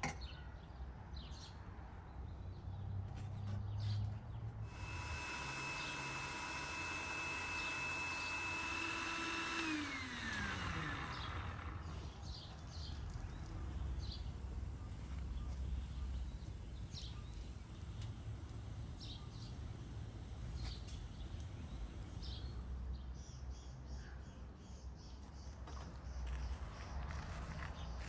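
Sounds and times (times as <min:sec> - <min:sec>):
outdoor background noise: 0:00.0 - 0:28.0
electric motor whining: 0:04.7 - 0:12.2.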